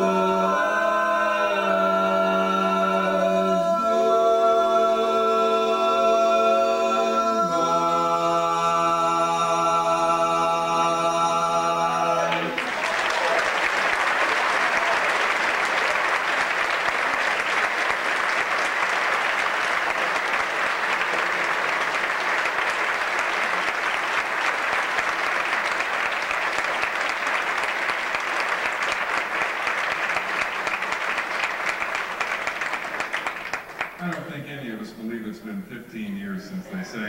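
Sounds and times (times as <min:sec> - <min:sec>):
audience applauding: 0:12.2 - 0:34.4.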